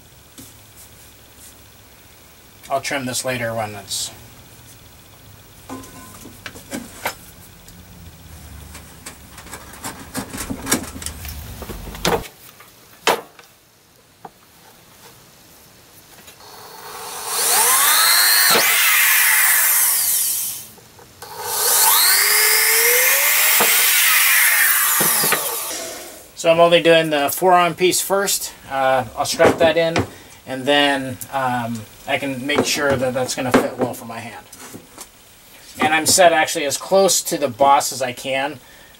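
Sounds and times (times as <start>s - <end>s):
power drill whining: 16.4s - 26.4s.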